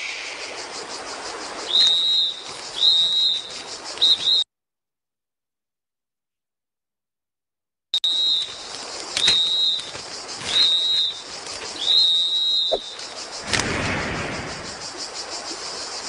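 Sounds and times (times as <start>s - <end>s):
faint hiss: 0.0s - 4.0s.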